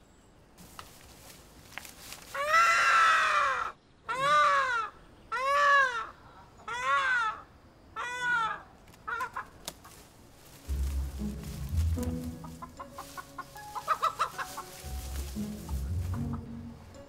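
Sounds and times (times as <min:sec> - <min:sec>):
chicken squawking: 0:02.3 - 0:07.4, 0:08.0 - 0:10.0, 0:12.4 - 0:16.5.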